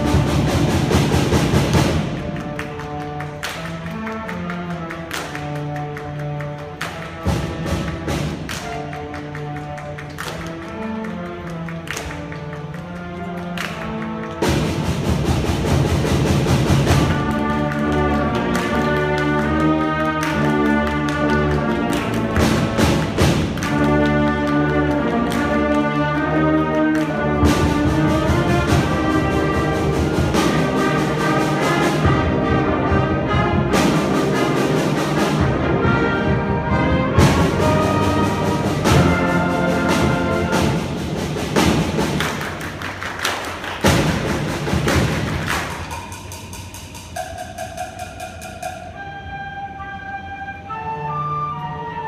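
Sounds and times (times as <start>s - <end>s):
drum hits: 0.0s - 2.6s, 37.1s - 42.8s, 43.5s - 48.8s
brass chords: 0.0s - 46.6s.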